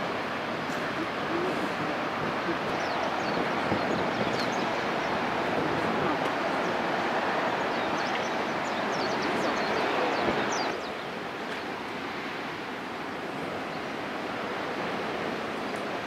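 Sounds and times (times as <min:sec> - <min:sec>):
wind on microphone: 0:00.0 - 0:10.8.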